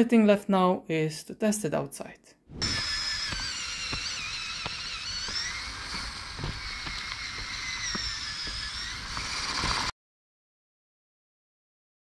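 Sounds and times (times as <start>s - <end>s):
toy electric motors whining: 2.6s - 9.9s
wheels clicking on asphalt: 2.8s - 9.9s.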